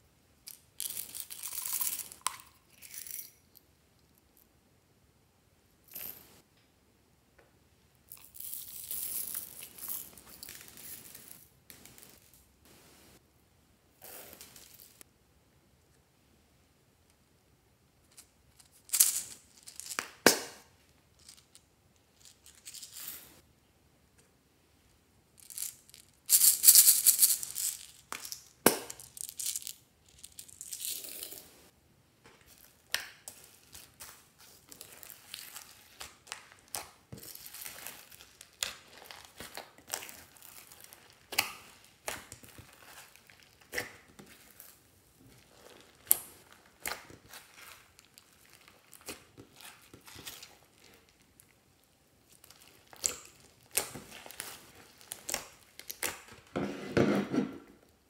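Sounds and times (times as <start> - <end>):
plastic beads rattling into glass dish: 0.8 - 3.4, 25.4 - 31.4.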